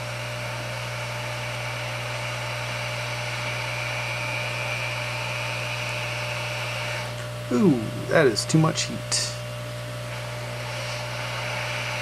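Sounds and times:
hot air station blowing: 0.0s - 12.0s
high whine: 7.2s - 9.5s.

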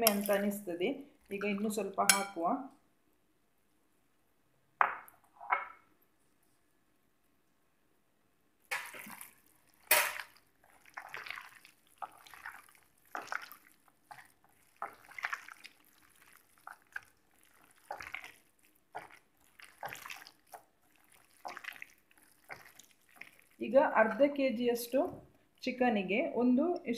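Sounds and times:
hand squelching meat in marinade: 8.7s - 23.6s.

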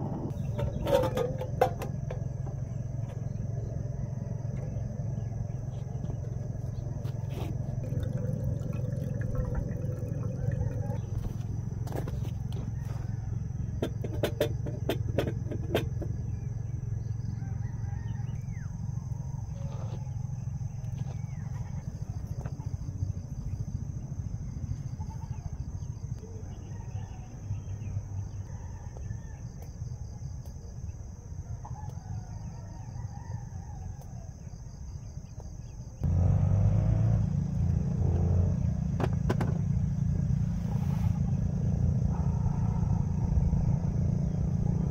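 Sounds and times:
steady low rumble: 0.0s - 13.9s, 39.7s - 44.9s
rooster crowing: 7.8s - 13.7s, 17.2s - 20.2s, 26.4s - 29.6s, 31.4s - 34.7s.

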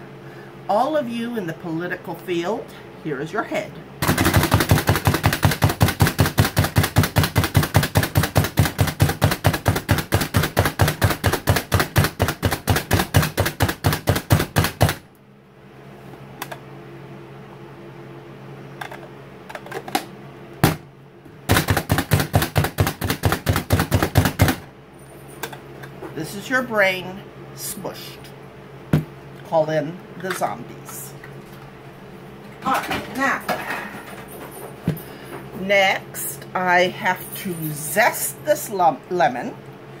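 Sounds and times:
hand food chopper clacking: 4.0s - 15.0s, 21.5s - 24.6s.

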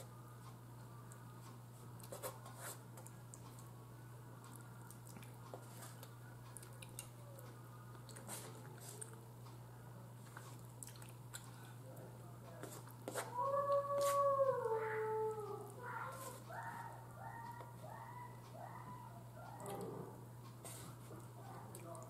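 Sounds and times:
soft chewing: 0.4s - 3.8s, 4.4s - 22.0s.

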